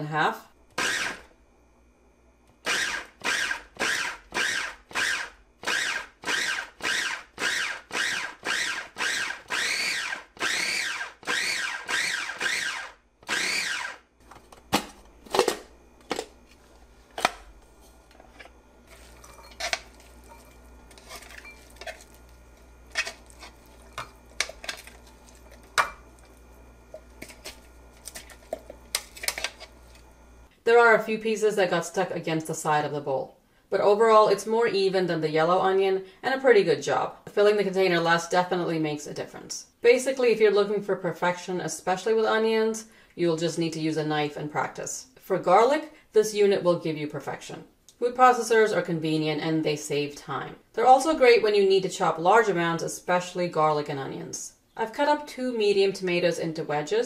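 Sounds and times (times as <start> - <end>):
food chopper motor bursts: 0.7 - 1.3, 2.6 - 14.1.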